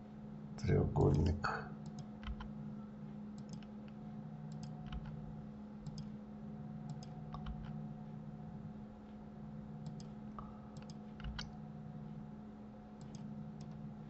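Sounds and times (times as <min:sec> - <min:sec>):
low electrical hum: 0:00.0 - 0:14.0
mouse and keyboard clicks: 0:01.8 - 0:02.5, 0:03.4 - 0:03.7, 0:04.5 - 0:05.2, 0:05.8 - 0:06.1, 0:06.9 - 0:07.8, 0:09.8 - 0:11.6.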